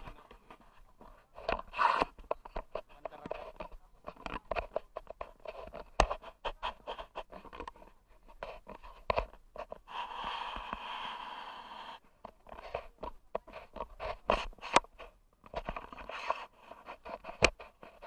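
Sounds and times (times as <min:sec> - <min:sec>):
steady hiss: 0:09.8 - 0:12.1.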